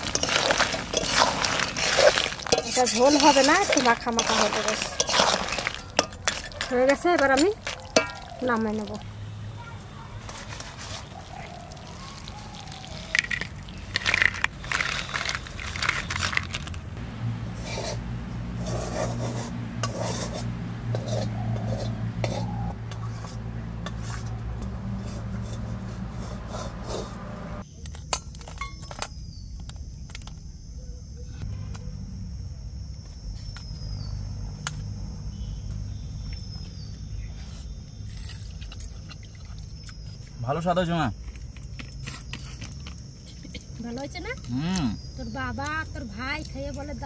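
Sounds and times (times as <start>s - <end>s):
metal wok scraping a plate: 0.0s - 8.2s, 18.6s - 27.6s.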